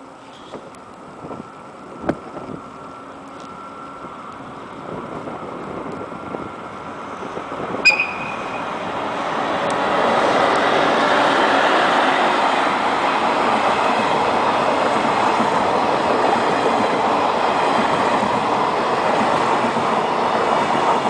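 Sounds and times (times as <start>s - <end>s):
electric locomotive running: 0.5s - 21.0s
brief high tone: 7.8s - 8.9s.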